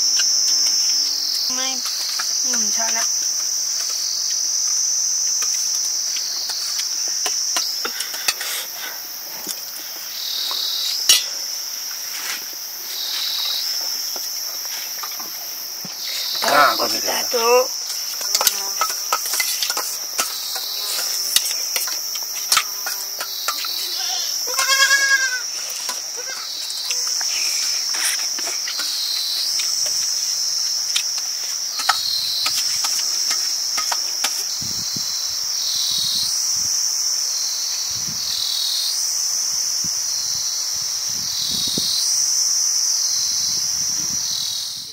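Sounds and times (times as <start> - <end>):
insects shrilling: 0.0 - 44.9
goat bleating: 23.9 - 25.4, 26.2 - 26.5.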